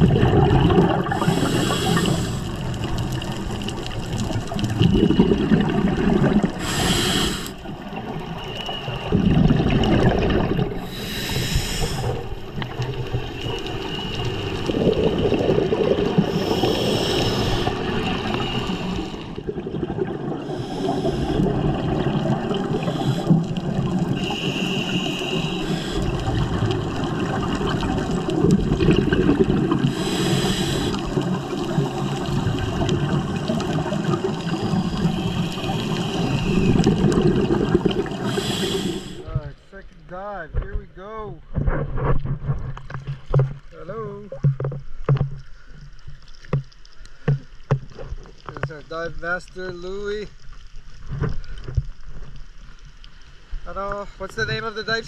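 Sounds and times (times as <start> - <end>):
bubbling exhaled air: 0.0 - 39.4
regulator inhale hiss: 1.1 - 2.8, 6.6 - 7.8, 10.8 - 12.4, 16.2 - 19.5, 20.4 - 21.5, 22.7 - 26.4, 29.8 - 31.2, 34.4 - 36.9, 38.1 - 39.3.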